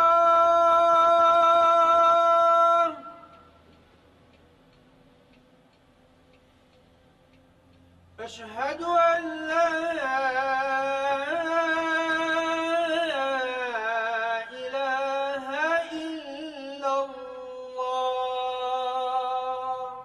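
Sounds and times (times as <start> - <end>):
man chanting: 0.0 - 3.5, 8.2 - 20.0.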